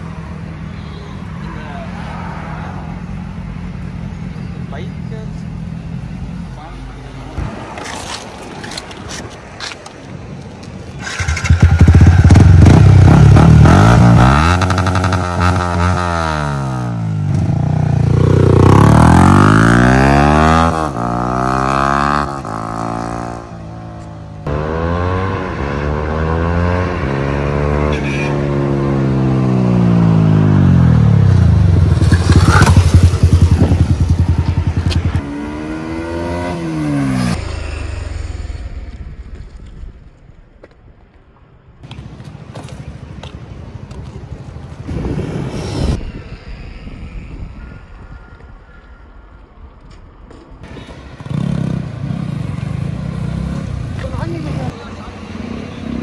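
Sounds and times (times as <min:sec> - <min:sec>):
motorcycle engine revving: 0:11.0 - 0:23.8, 0:24.4 - 0:39.5, 0:50.9 - 0:54.8.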